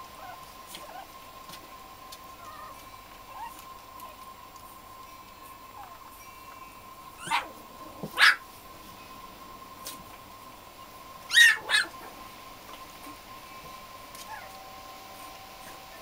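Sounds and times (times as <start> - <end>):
puppies yelping: 0.2 - 1.1, 2.3 - 4.2, 5.8 - 6.0, 7.2 - 8.4, 11.3 - 12.2, 14.2 - 14.6.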